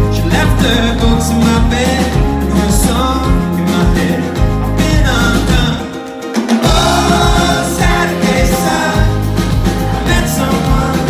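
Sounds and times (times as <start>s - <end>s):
bass guitar: 0.0s - 11.0s
drums: 0.0s - 11.0s
man singing: 0.0s - 11.0s
ukulele: 0.0s - 11.0s.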